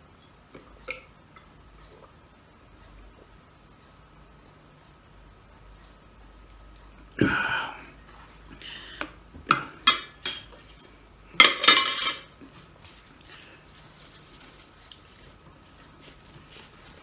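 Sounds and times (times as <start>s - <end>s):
cutlery clinking on plate: 9.5s - 12.3s
cutlery clatter: 9.9s - 12.3s.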